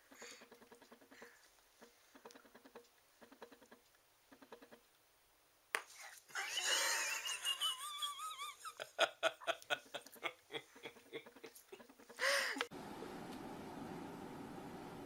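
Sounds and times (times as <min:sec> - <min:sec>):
person laughing: 0:06.3 - 0:12.7.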